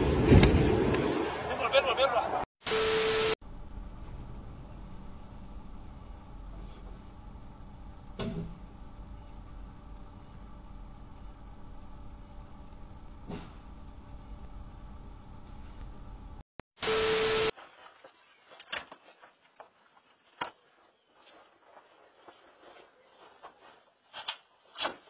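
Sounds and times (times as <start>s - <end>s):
tv static burst with beep: 2.6s - 3.4s, 16.8s - 17.5s.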